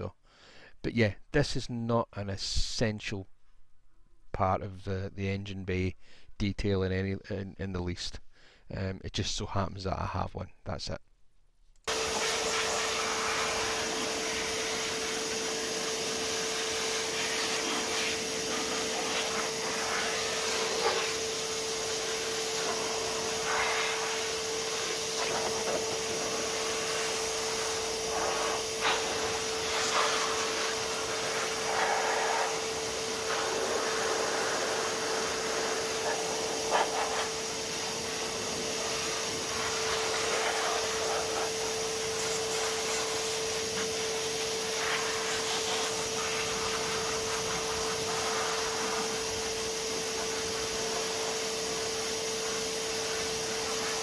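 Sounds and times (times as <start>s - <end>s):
vacuum blowing air: 11.8s - 54.0s.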